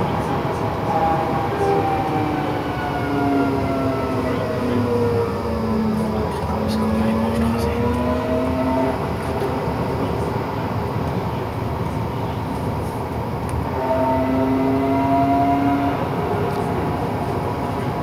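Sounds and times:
rising multi-tone whine: 0.0 - 10.3
tram rolling rumble: 0.0 - 18.0.

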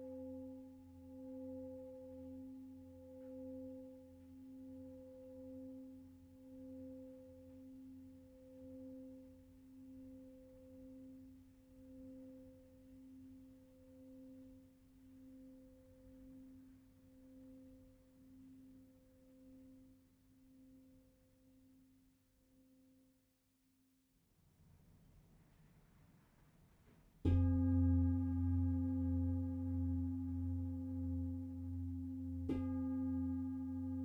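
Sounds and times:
singing bowl ringing: 27.3 - 34.0.

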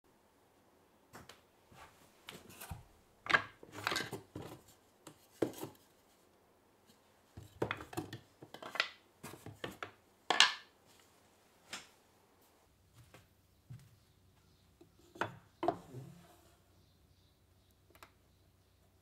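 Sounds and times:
wooden offcuts knocking and scraping: 2.3 - 6.0, 7.3 - 10.7, 14.8 - 16.4.

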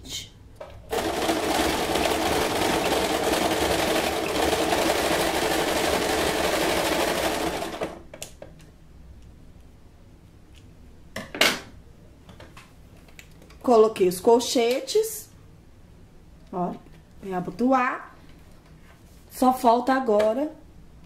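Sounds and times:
sewing machine running: 0.9 - 8.0.

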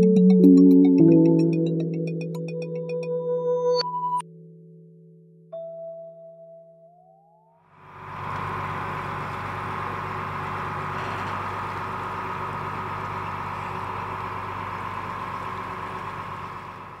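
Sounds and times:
boat diesel engine humming: 7.8 - 17.0
engine whine: 7.8 - 17.0.

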